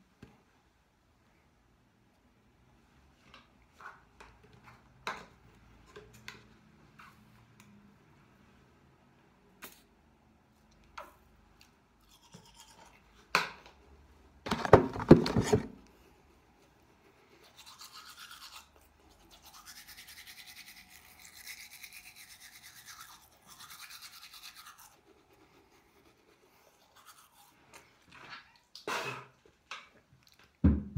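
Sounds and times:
toothbrush scrubbing teeth: 12.0 - 13.1, 16.8 - 28.6.

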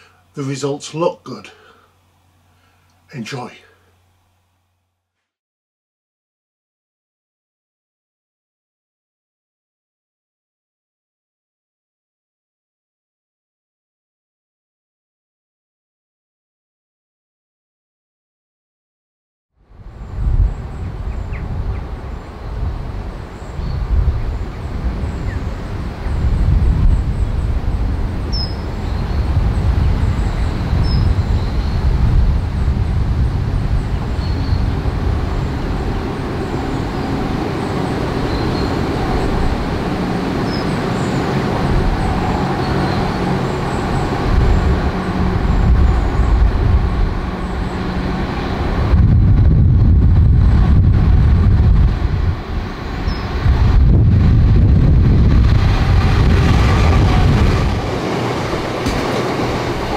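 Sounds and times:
train engine hum: 19.7 - 59.9
wind rumbling on microphone: 19.7 - 59.9.

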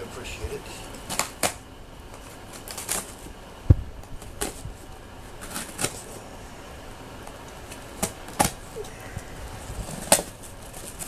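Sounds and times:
cardboard scraping and rustling: 4.2 - 6.2, 9.6 - 11.0.

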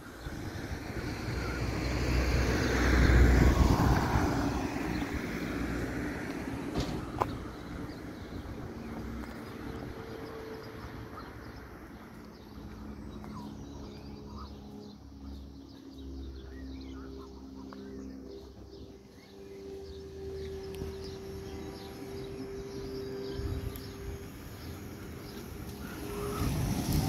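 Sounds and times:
car passing: 0.1 - 27.0.

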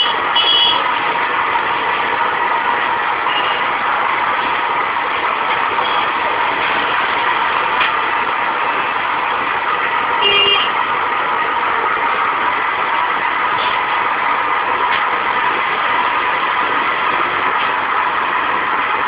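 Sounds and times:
vehicle horn beep: 0.0 - 0.8, 3.3 - 3.7, 10.2 - 10.8
street traffic noise: 0.0 - 19.0.

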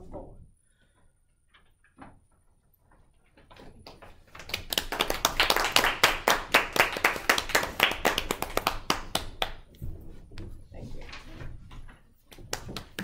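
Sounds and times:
audience applauding: 4.3 - 9.6, 12.5 - 13.0.

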